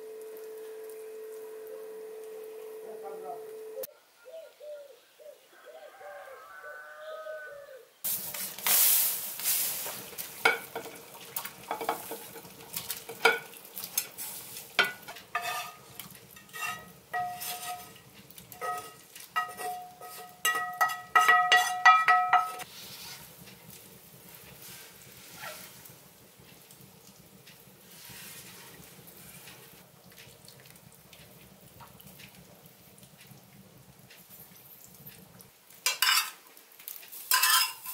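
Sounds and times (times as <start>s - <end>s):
bird calls: 3.9s - 6.2s
wooden spoon stirring soup: 9.9s - 33.4s
pan scraping on pot: 10.4s - 23.4s, 24.6s - 25.8s, 27.9s - 29.8s, 35.9s - 36.4s, 37.3s - 37.9s.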